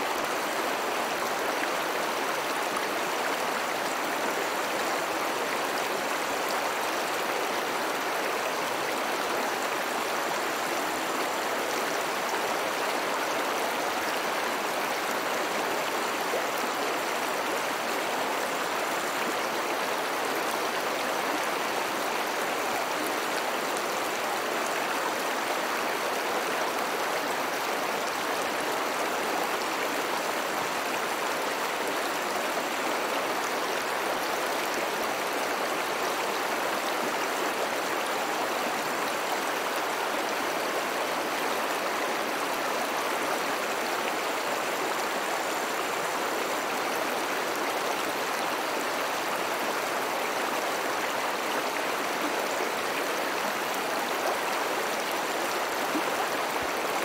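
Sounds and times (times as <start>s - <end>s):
river water rushing: 0.0s - 57.0s.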